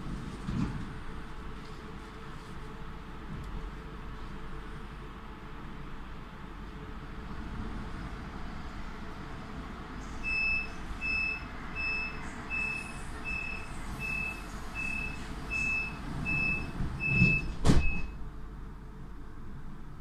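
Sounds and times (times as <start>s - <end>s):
train rumbling: 0.0s - 20.0s
high door warning beeps: 10.2s - 18.2s
doors shutting with a thud: 16.6s - 18.2s.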